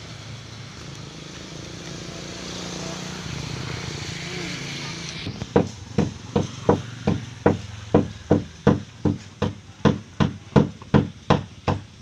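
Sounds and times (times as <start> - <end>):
hammer striking wood: 5.3 - 11.9.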